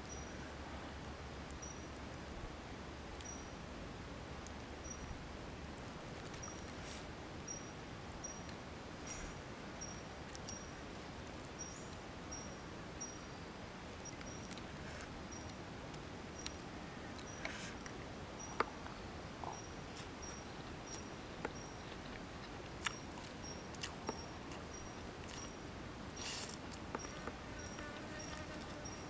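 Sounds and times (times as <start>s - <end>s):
crunchy food being chewed: 16.4s - 29.0s.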